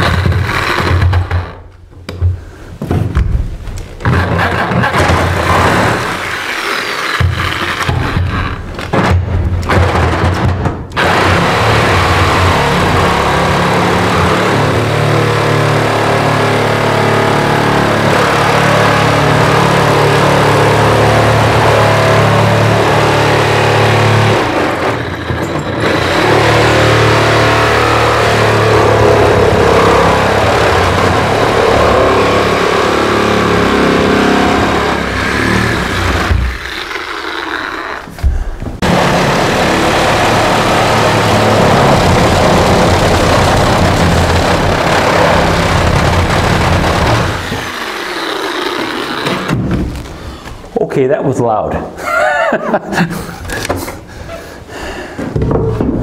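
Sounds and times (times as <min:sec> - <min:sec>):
reciprocating saw cutting: 0:00.0 - 0:01.6, 0:04.0 - 0:08.8, 0:10.9 - 0:38.2, 0:38.8 - 0:49.6.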